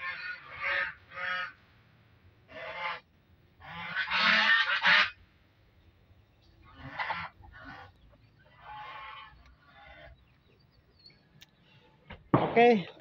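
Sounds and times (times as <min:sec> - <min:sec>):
chickens clucking: 0:06.2 - 0:10.9.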